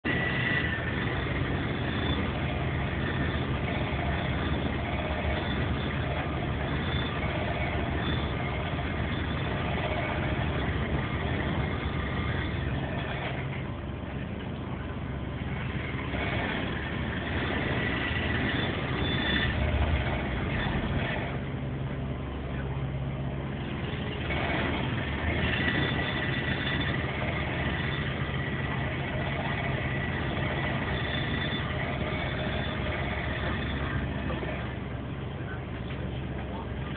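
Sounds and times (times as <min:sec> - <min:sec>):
engine-like low hum: 0:00.0 - 0:36.9.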